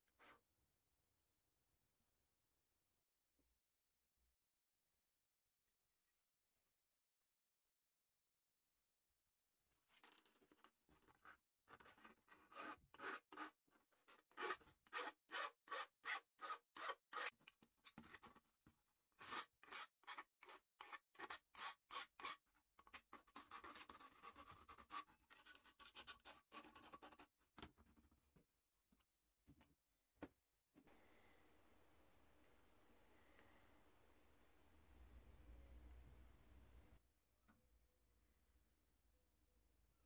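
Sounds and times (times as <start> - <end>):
file scraping metal: 11.8 - 17.4.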